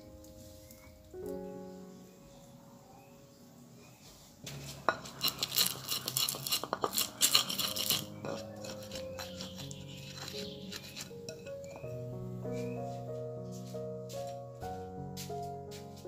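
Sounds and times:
soft piano music: 0.0s - 16.0s
pestle grinding in clay mortar: 4.4s - 12.0s.

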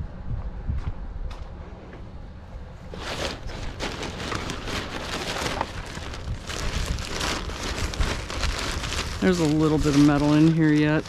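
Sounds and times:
plastic trash bag rustling: 2.9s - 11.0s.

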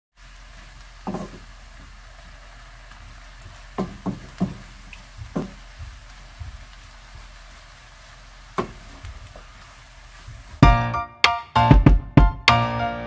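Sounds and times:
low steady hiss: 0.2s - 11.0s
wooden spatula knocking on a pan: 1.0s - 1.5s, 3.8s - 6.7s, 8.6s - 9.1s.

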